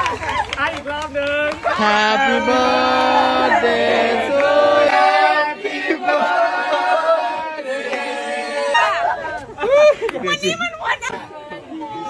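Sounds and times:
group of people singing: 1.6s - 9.6s.

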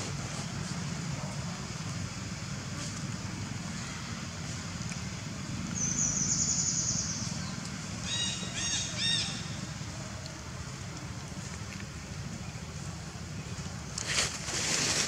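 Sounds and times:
steady low hum: 0.0s - 14.5s
bird trilling: 8.0s - 9.6s.

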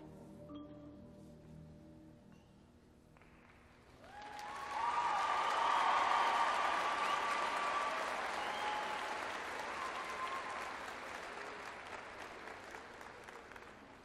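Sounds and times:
audience applause: 3.9s - 14.0s.

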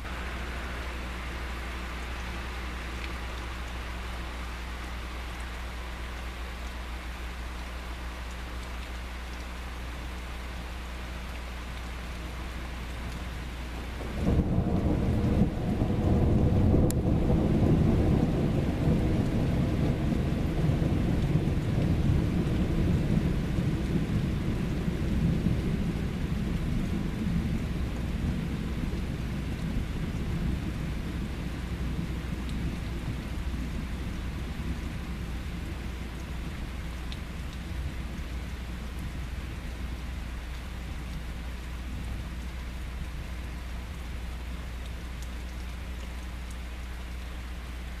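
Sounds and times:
steady rain falling: 0.0s - 48.0s
thunder rumbling: 14.0s - 38.2s.

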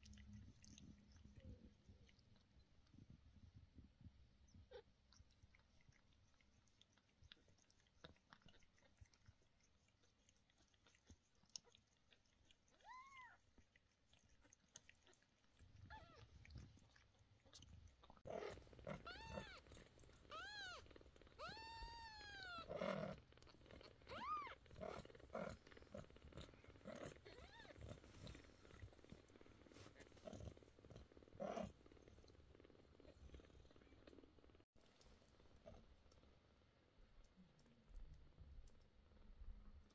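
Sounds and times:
cat licking kitten: 0.0s - 39.9s
cat purring: 0.0s - 39.9s
kitten mewing: 18.3s - 23.2s.

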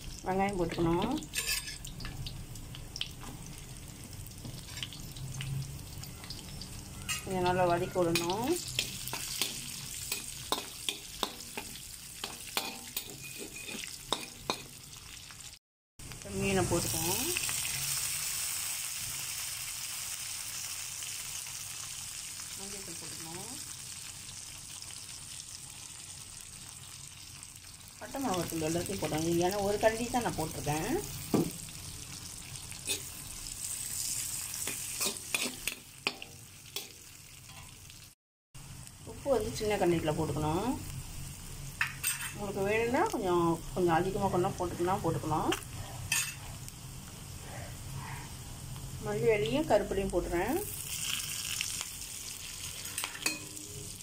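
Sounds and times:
onions sizzling in hot oil: 0.0s - 54.0s
utensil scraping a pan: 1.3s - 1.8s, 8.1s - 14.6s.

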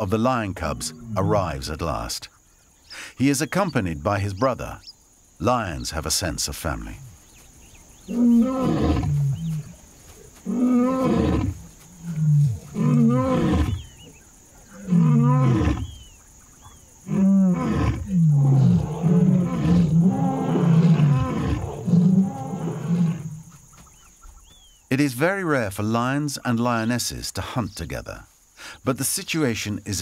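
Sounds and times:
lion roaring: 8.1s - 9.8s, 10.4s - 14.0s, 14.6s - 16.0s, 17.0s - 23.5s.

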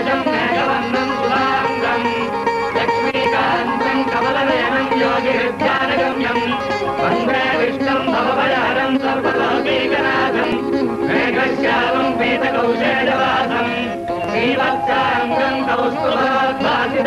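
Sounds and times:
instrumental accompaniment: 0.0s - 17.0s
person singing ornamented melody: 0.0s - 17.0s
steady held drone note: 6.5s - 16.6s.

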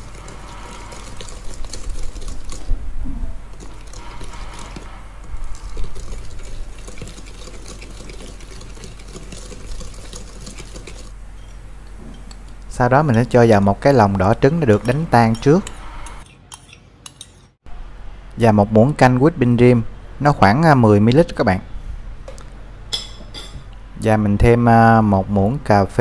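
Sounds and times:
whisk swishing butter: 0.0s - 2.7s, 3.5s - 11.2s
whisk wires clicking on metal bowl: 3.6s - 11.1s.

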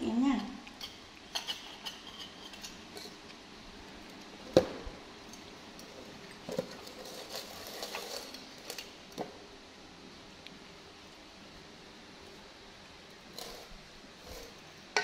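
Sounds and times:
tableware clinking on metal pot: 0.8s - 2.8s.

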